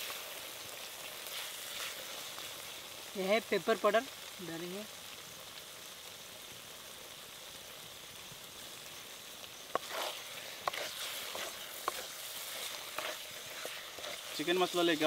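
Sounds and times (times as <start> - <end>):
chicken sizzling in a pan: 0.0 - 15.0
metal spatula scraping a pan: 9.7 - 14.7.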